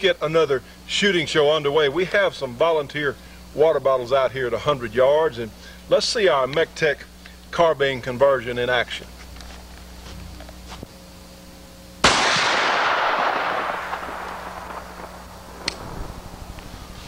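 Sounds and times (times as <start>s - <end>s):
gunshot: 12.0s - 15.9s.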